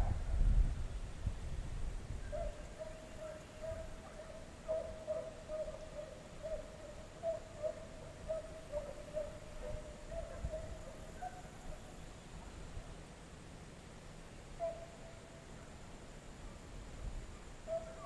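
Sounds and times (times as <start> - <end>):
hounds baying: 2.3 - 11.9, 17.6 - 18.0.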